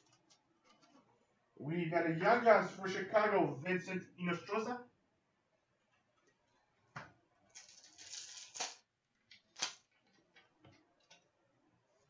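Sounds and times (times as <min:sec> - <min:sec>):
plastic wrapper crinkling and tearing: 0:07.5 - 0:10.2.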